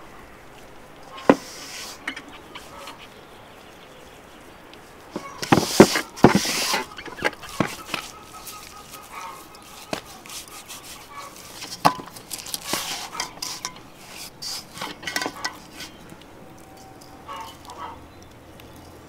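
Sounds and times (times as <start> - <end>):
wet rubbing of raw meat: 1.0 - 3.2, 4.8 - 16.3.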